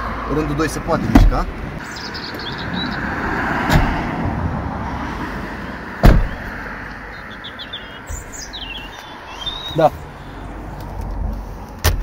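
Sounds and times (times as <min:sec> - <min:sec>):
loud thud: 0:01.1 - 0:01.5, 0:03.7 - 0:04.0, 0:06.0 - 0:06.5
car seat sliding and latching: 0:06.0 - 0:06.5.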